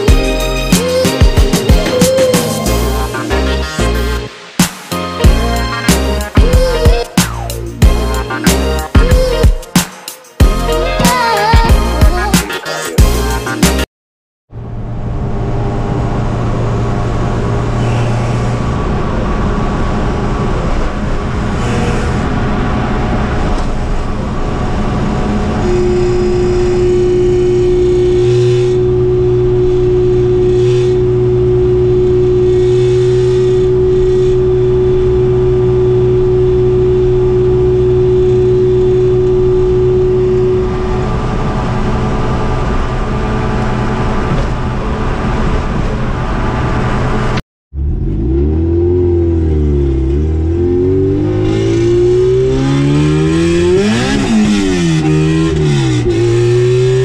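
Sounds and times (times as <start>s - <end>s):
car engine and exhaust: 14.5s - 57.0s
road noise: 14.5s - 57.0s
strong exhaust drone: 14.6s - 57.0s.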